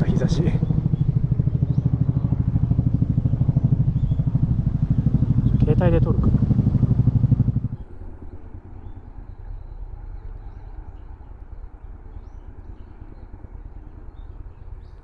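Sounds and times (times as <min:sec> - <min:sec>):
low rumble: 0:00.0 - 0:15.0
faint bird chirps: 0:07.7 - 0:15.0.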